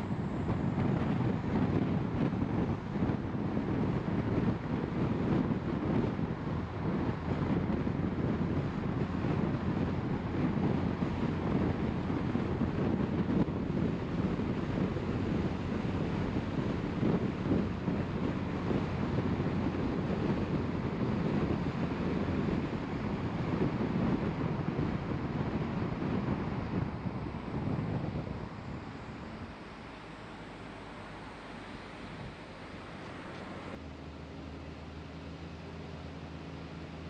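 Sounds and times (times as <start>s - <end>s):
car road and wind noise: 0.0s - 37.0s.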